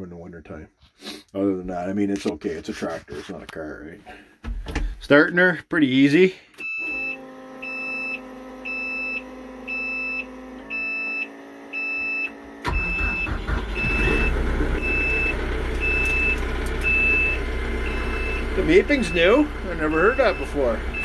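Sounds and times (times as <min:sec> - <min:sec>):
diesel engine starting and idling: 0:06.6 - 0:21.0
warning beeper: 0:06.8 - 0:21.0.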